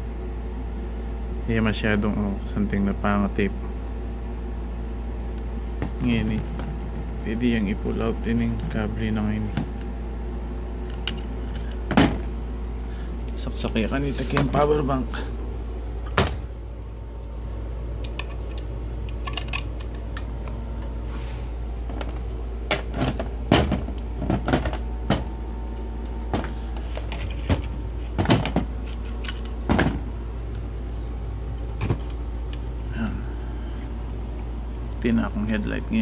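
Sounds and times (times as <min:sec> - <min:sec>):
steady low hum: 0:00.0 - 0:36.0
handling clicks and knocks: 0:26.3 - 0:30.6.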